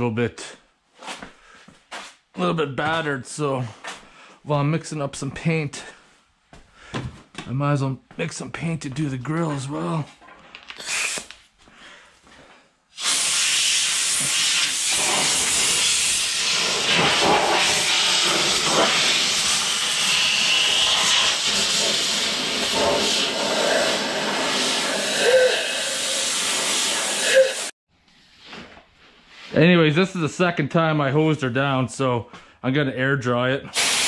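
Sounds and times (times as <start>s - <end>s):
compressed air blow gun hissing: 10.8s - 11.3s, 13.0s - 27.7s, 33.8s - 34.0s.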